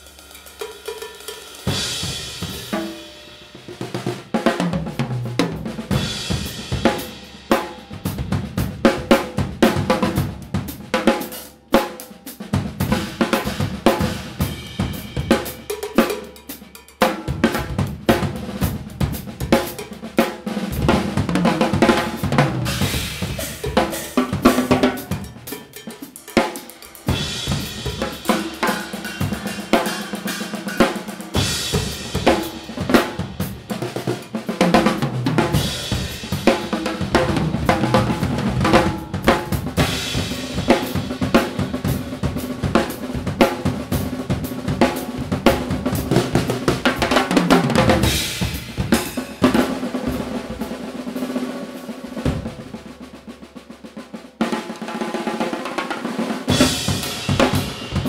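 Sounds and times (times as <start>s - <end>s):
snare drum: 0.0s - 58.0s
tom drum: 0.0s - 58.0s
bass drum: 20.7s - 25.8s, 26.8s - 29.9s, 34.6s - 50.8s
cymbal crashes: 22.1s - 33.7s.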